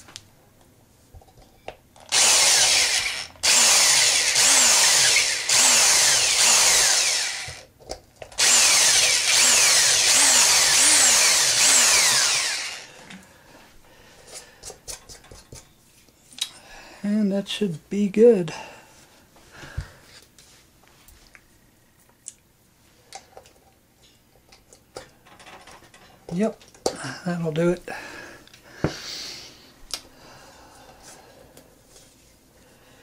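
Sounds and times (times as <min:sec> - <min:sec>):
power drill drilling wood: 0:02.1 - 0:07.7, 0:08.4 - 0:13.0.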